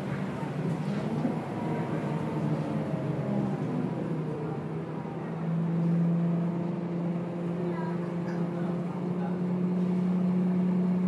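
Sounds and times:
bus diesel engine hum: 0.0 - 11.0.

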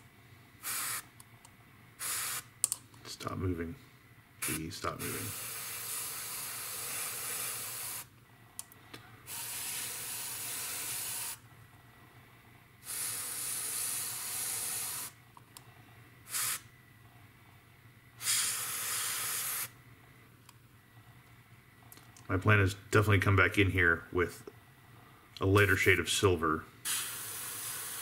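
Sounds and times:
airbrush spraying hiss: 0.6 - 1.1, 2.0 - 2.5, 4.4 - 8.1, 9.3 - 11.4, 12.8 - 15.2, 16.3 - 16.7, 18.2 - 19.8, 26.8 - 28.0.

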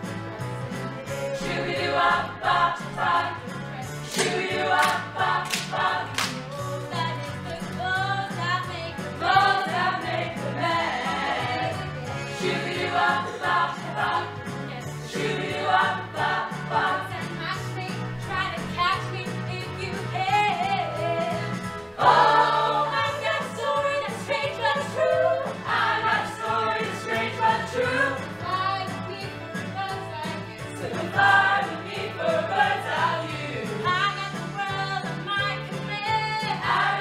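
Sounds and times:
cast singing together: 1.2 - 6.4, 9.2 - 17.4, 22.0 - 28.8, 30.8 - 34.0, 36.4 - 37.0.

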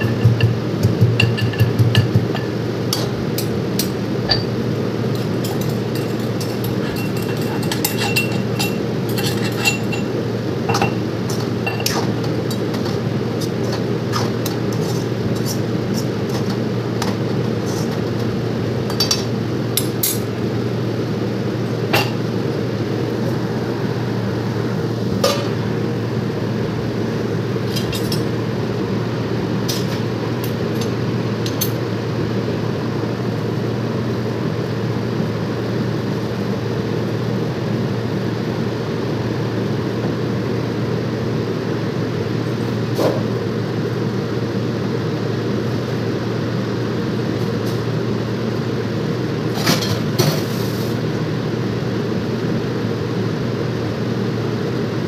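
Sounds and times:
steady low hum: 0.0 - 55.0
steel utensils clinking: 1.2 - 15.7
spatula scraping in a wok: 13.3 - 16.6, 17.6 - 18.0.

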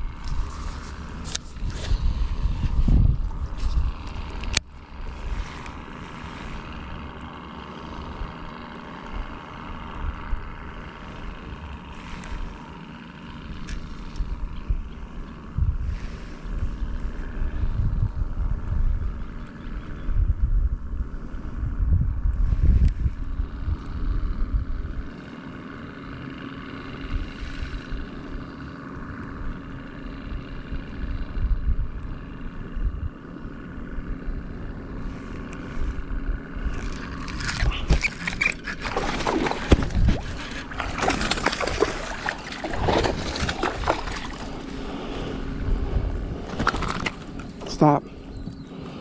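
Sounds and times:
boat motor running: 0.0 - 49.0
irregular splashing and knocking: 36.8 - 45.0.

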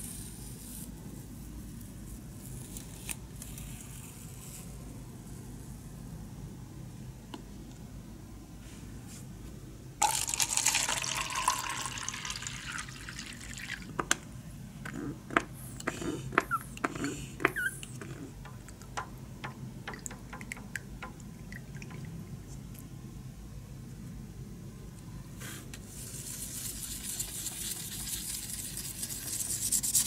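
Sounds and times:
water pouring into plastic cup: 10.0 - 14.0
stick tapping against cup: 15.3 - 22.1.

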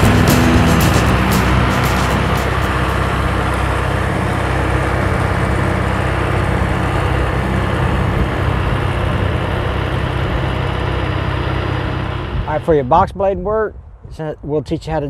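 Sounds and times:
tractor diesel engine running: 0.0 - 12.9.

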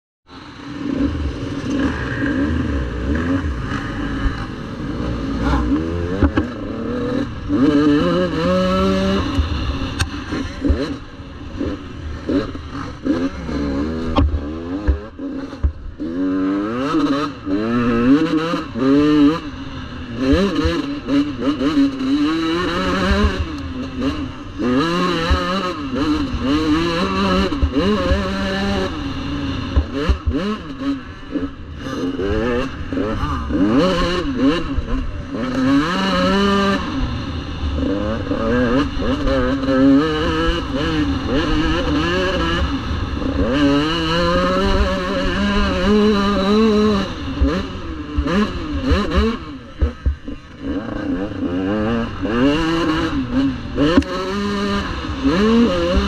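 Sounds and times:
motocross bike engine revving: 0.3 - 56.0.

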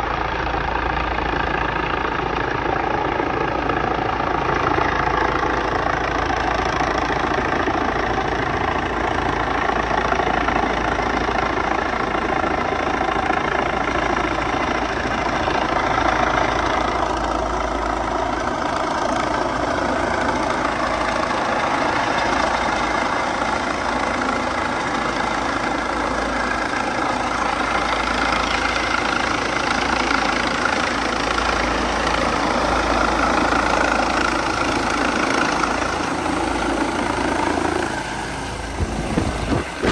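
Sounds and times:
helicopter rotors and turbine engines: 0.0 - 39.9
turbine whine: 10.6 - 39.9.

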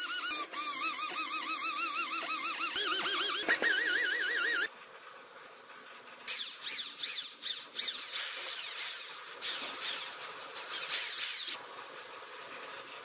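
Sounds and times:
electric drill grinding valve: 0.0 - 4.7.

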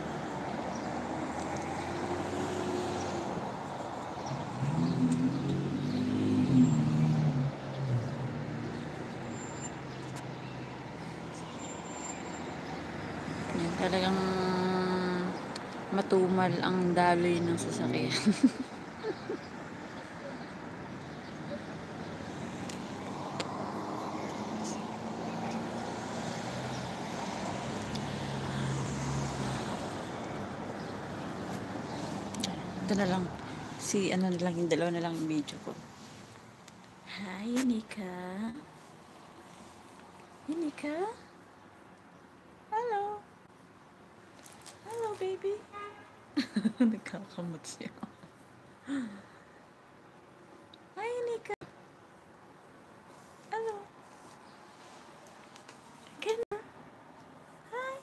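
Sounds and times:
truck engine passing: 0.0 - 10.9, 20.8 - 34.0
cars passing on road: 0.0 - 58.0
distant traffic hum: 0.0 - 58.0.

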